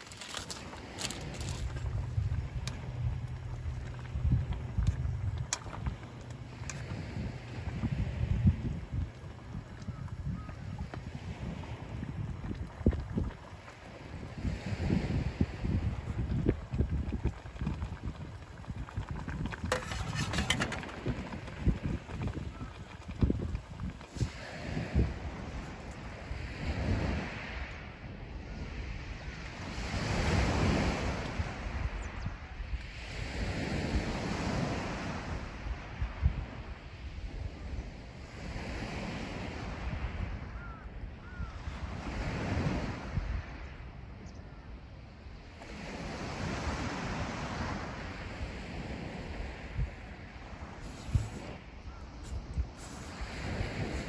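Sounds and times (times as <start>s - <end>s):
sea waves washing onto shore: 0.0s - 27.7s, 45.4s - 54.0s
wind buffeting microphone: 0.0s - 54.0s.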